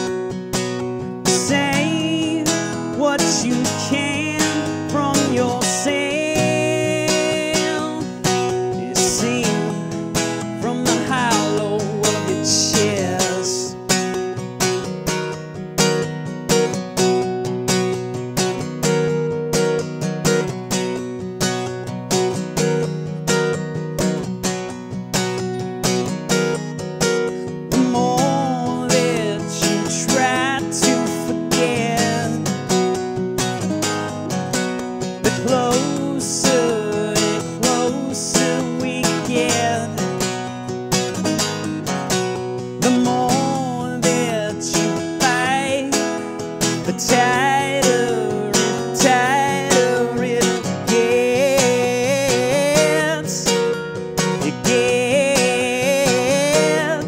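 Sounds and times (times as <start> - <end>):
man singing: 0.0 - 14.2, 27.1 - 57.0
acoustic guitar strumming: 0.0 - 57.0.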